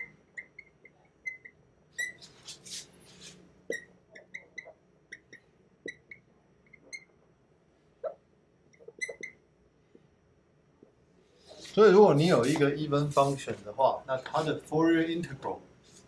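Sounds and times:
marker squeaking on whiteboard: 0.0s - 7.2s, 8.0s - 9.5s.

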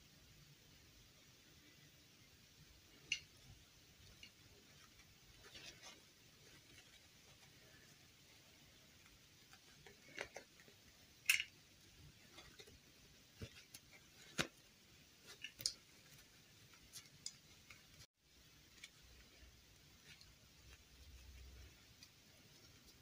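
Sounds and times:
cloth clothing rustling: 3.4s - 10.9s
handling plastic doll clicks: 9.8s - 11.6s.

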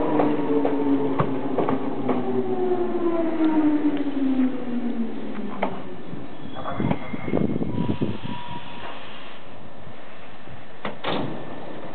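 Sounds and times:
electric train hissing: 7.6s - 10.7s
train door click: 10.8s - 11.9s.

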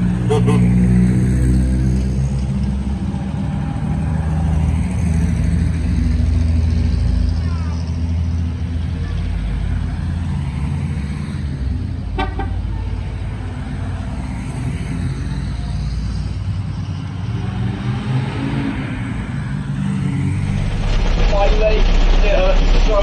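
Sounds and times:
old cars driving past slowly: 0.0s - 23.0s
short car horn toot: 0.3s - 0.7s.

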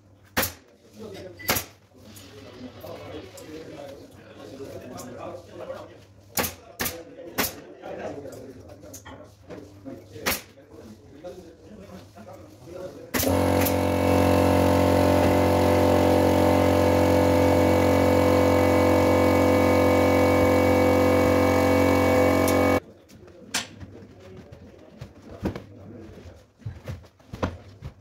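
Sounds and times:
air compressor humming: 13.1s - 22.8s.

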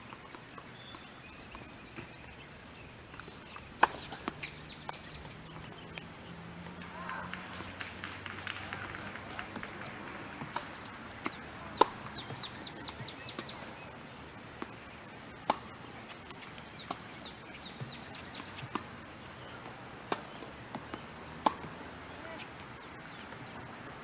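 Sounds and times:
bird chirping: 0.0s - 21.4s
tennis ball knocks: 3.2s - 6.0s, 6.6s - 13.6s, 15.4s - 15.7s, 20.1s - 21.8s.

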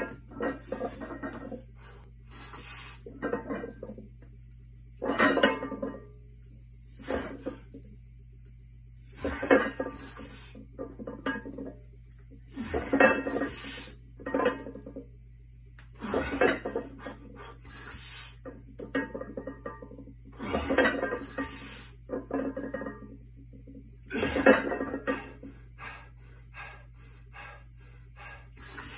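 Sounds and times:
weight plates clanking: 0.0s - 4.1s, 5.0s - 6.1s, 9.0s - 15.1s, 16.0s - 25.4s.

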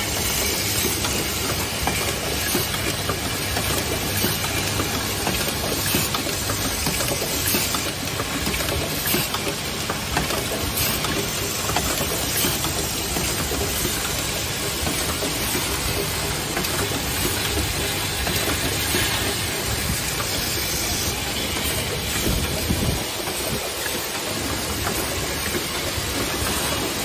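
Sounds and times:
machine clatter and hiss: 0.0s - 27.0s.

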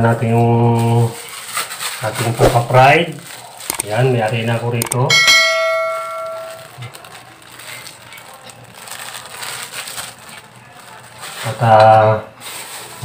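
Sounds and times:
bright ringing chime: 4.9s - 6.7s
plastic bag crinkling: 6.3s - 11.7s.

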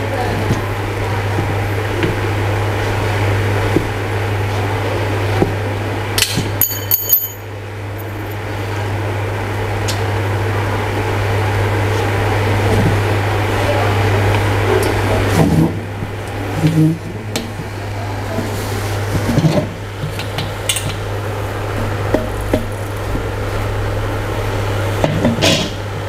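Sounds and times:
steady hum and hiss: 0.0s - 26.0s
metal bolts and tubing clinking: 6.6s - 7.4s
short metallic ring: 6.6s - 7.4s.

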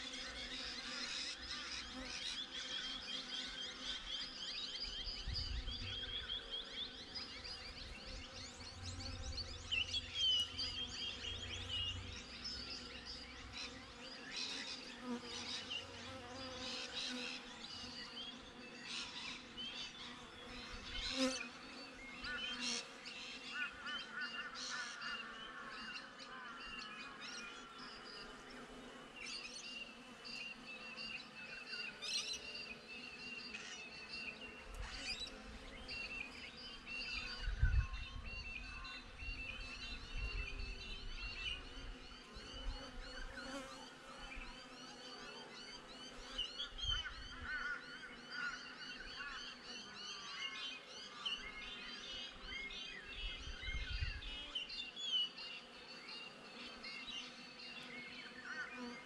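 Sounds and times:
birds chirping: 0.4s - 21.4s
honey bees buzzing: 5.7s - 18.8s, 19.4s - 23.0s, 27.0s - 37.6s.

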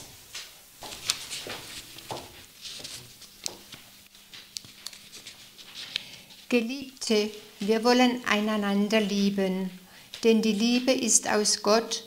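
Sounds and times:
footsteps walking: 0.0s - 11.5s
rustling of paper or clothing: 0.3s - 9.4s.

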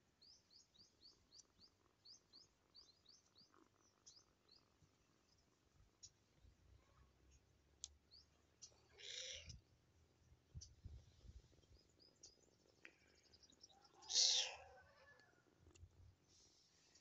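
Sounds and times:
kitten meowing: 14.1s - 14.5s.

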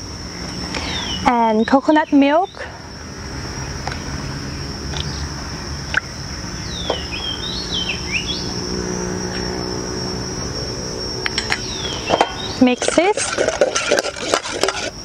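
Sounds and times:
high insect buzz: 0.0s - 15.0s
bird whistling: 6.6s - 8.5s.

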